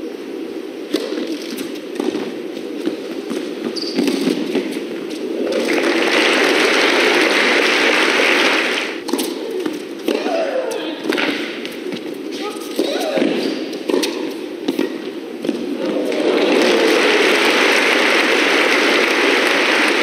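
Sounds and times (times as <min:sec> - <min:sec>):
low hall noise: 0:00.0 - 0:20.0
crowd applause: 0:05.4 - 0:09.0, 0:15.8 - 0:20.0.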